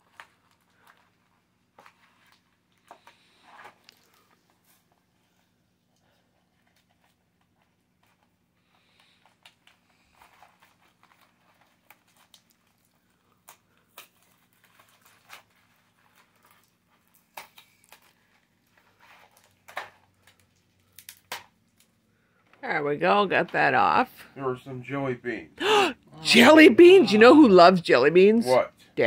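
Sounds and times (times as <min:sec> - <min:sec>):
packaging crinkling: 0:08.9 - 0:22.0.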